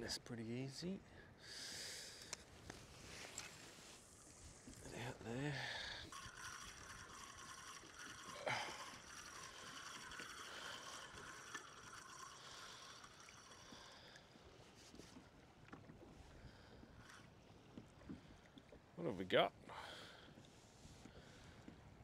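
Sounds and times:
faint steady whirr: 0.8s - 22.0s
water sloshing against kayak hull: 14.3s - 19.0s.

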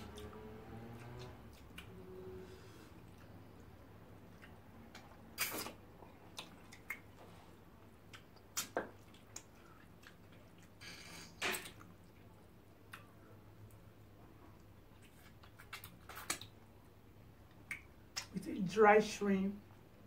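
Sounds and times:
squishy chewing: 0.0s - 10.9s, 14.5s - 16.7s
wet mouth smacks: 4.4s - 5.8s, 6.4s - 7.1s, 8.1s - 10.2s, 15.1s - 16.5s, 17.6s - 18.3s.

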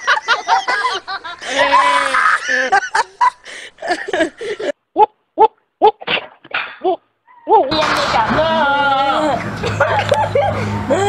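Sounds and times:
people laughing hard: 0.0s - 4.8s, 7.7s - 11.0s.

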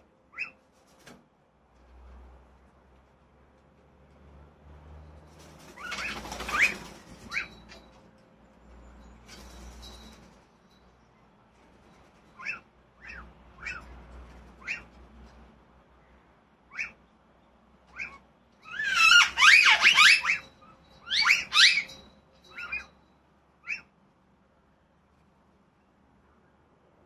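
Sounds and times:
birds squawking rapidly: 0.3s - 0.6s, 5.6s - 7.7s, 12.4s - 15.0s, 16.7s - 17.0s, 17.8s - 22.9s, 23.6s - 23.9s
bird chirps: 17.9s - 23.0s.

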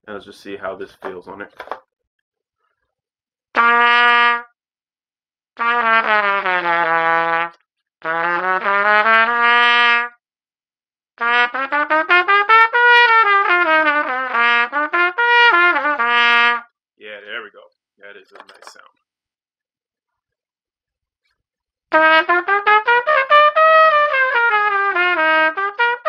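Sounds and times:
plastic trumpet playing: 3.6s - 4.5s, 5.6s - 10.1s, 11.2s - 16.7s, 21.9s - 26.0s.

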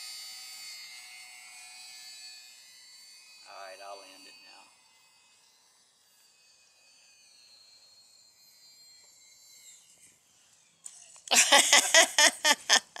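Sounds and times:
model plane motor whine: 0.0s - 13.0s
person laughing loudly: 11.3s - 13.0s.

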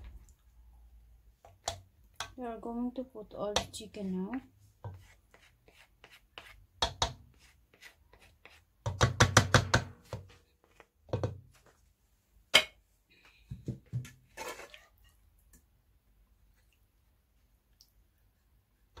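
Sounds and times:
spoon knocking and scraping a pan: 4.4s - 7.5s, 8.4s - 11.4s, 13.5s - 15.1s.

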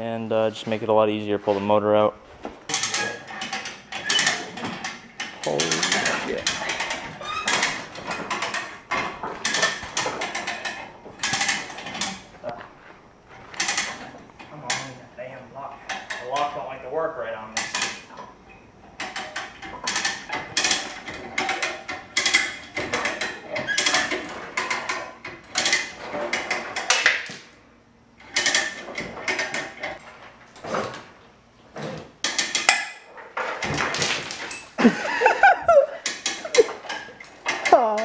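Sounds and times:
squeaks: 2.7s - 12.3s.

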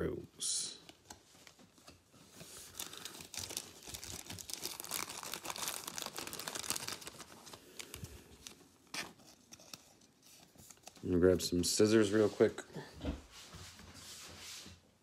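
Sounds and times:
glossy cards crinkling: 0.8s - 11.4s.

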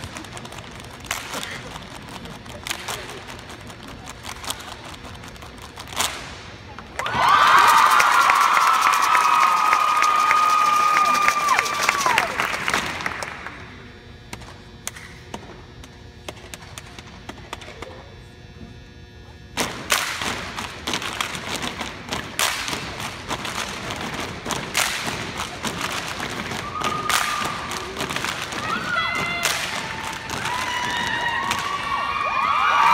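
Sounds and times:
crowd cheering: 7.0s - 13.6s, 26.4s - 32.9s
stomps and hand claps: 19.6s - 31.9s.

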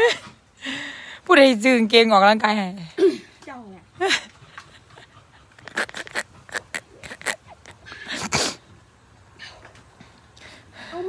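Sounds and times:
plastic bottle crackling: 5.6s - 7.8s
person drinking: 5.6s - 8.6s.

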